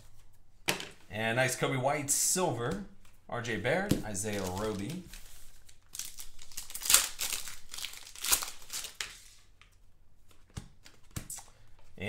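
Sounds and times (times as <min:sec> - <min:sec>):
foil wrapper crinkling and tearing: 0:04.1 - 0:09.5.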